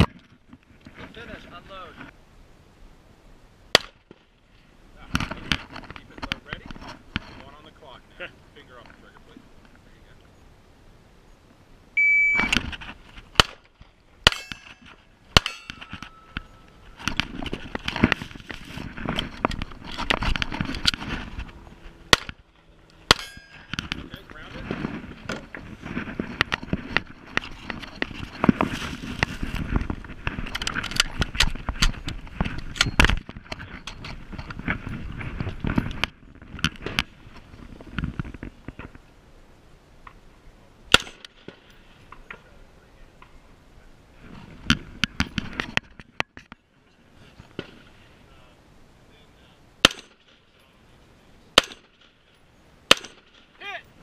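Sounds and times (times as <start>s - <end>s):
movement noise: 4.1s - 48.6s
shot timer beep: 12.0s - 12.6s
pistol shots: 13.4s - 13.6s, 14.2s - 14.6s, 23.1s - 23.4s, 40.9s - 41.5s, 49.8s - 50.3s, 51.6s - 52.1s, 52.9s - 53.5s.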